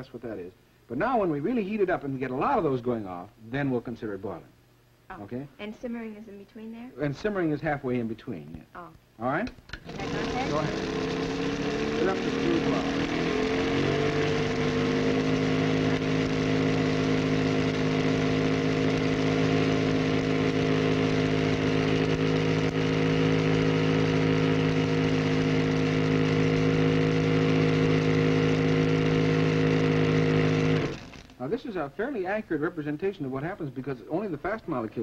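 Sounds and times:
electric motor humming: 9.8s - 31.3s.

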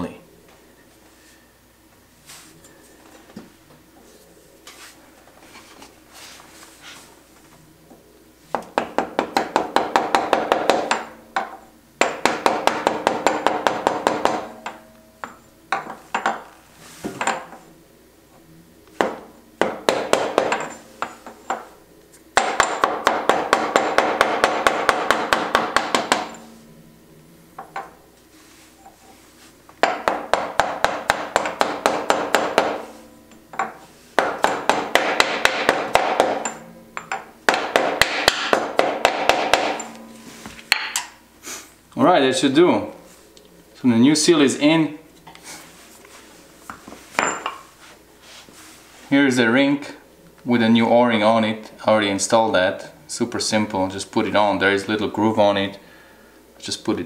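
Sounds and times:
mallet tapping ringing metal socket: 39.8s - 40.2s.

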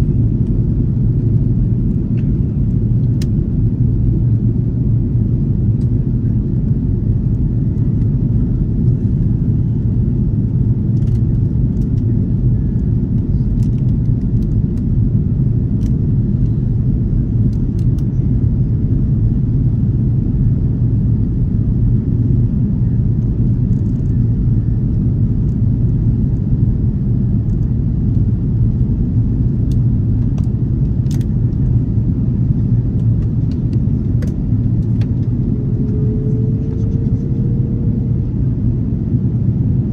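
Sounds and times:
airliner cabin engine drone: 0.0s - 39.9s.

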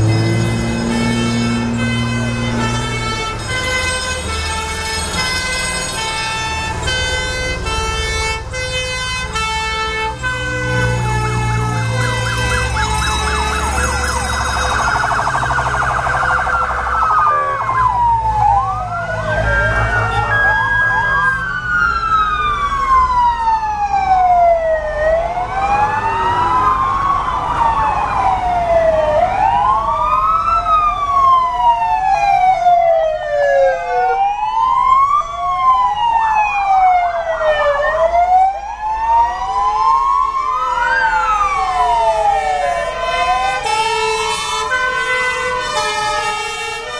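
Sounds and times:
emergency vehicle sirens wailing: 0.0s - 46.9s
fast warbling siren tone: 12.5s - 22.4s, 24.0s - 43.6s.

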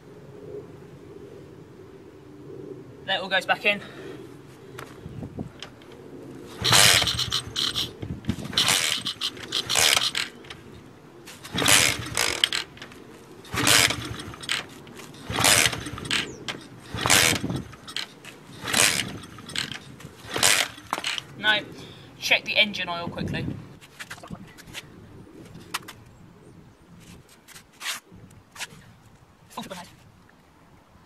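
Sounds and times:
motorbike kick-start turning over: 6.5s - 21.4s.

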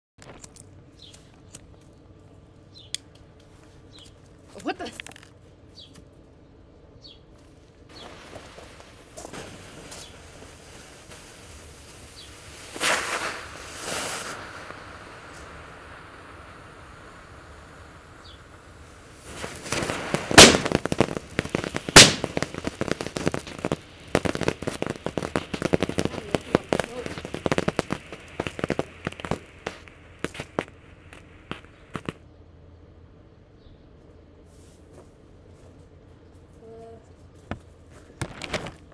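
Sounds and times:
fireworks fizzing: 7.9s - 32.2s
fireworks hissing sparks: 7.9s - 32.2s.

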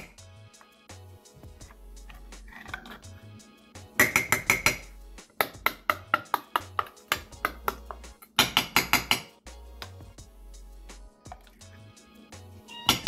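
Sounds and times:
metal spoon scraping steel bowl: 2.0s - 3.2s.

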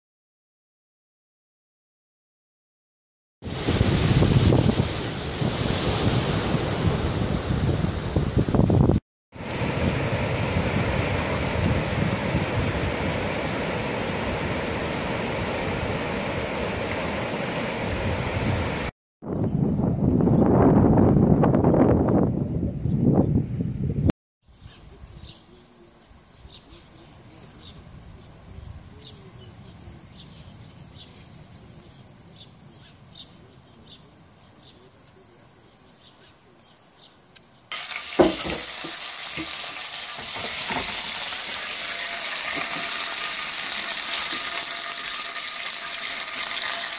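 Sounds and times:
ocean surf on rocky shore: 3.4s - 8.6s, 9.4s - 18.9s, 37.8s - 39.6s, 40.3s - 46.9s
insect chirps: 24.4s - 46.9s
insects trilling: 24.5s - 46.9s.

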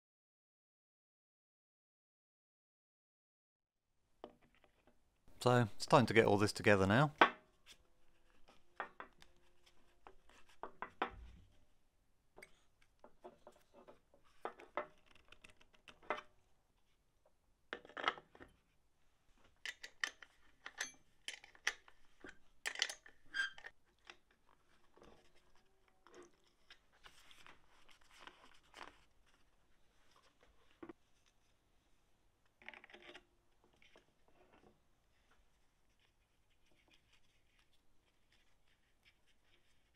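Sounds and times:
metal and plastic parts clinking: 19.7s - 23.7s.

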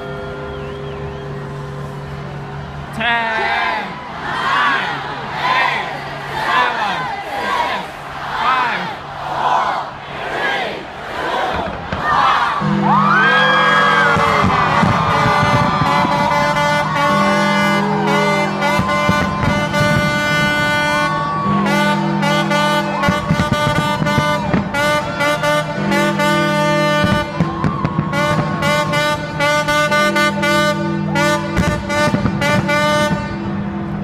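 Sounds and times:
fireworks bursting: 13.8s - 21.1s, 23.0s - 29.8s, 31.5s - 33.3s.

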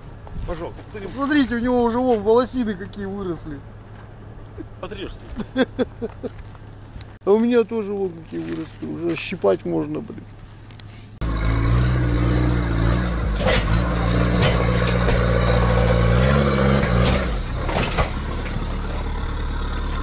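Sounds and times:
diesel engine running: 10.6s - 20.0s.

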